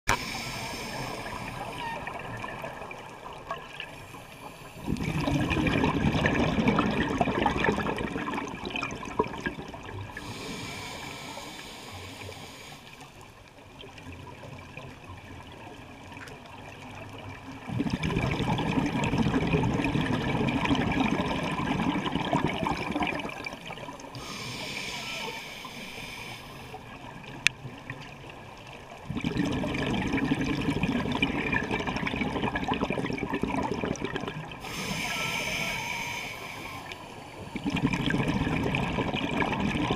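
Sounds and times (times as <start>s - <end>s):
underwater regulator bubbling: 4.8s - 12.6s, 17.7s - 26.7s, 29.1s - 39.9s.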